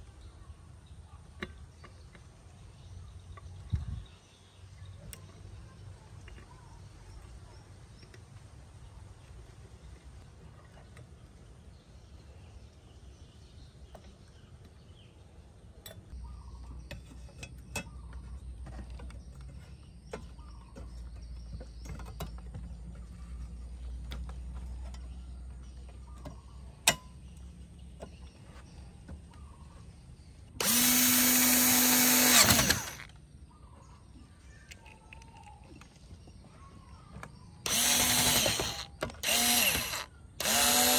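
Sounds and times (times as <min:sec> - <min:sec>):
electric screwdriver motor whine: 0:30.6 - 0:33.1, 0:37.6 - 0:40.9.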